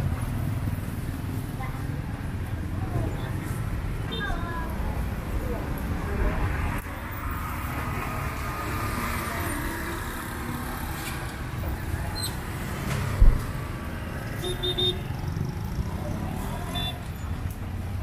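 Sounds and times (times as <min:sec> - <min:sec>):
road traffic rumble: 0:00.0 - 0:18.0
dull thump: 0:13.2 - 0:13.5.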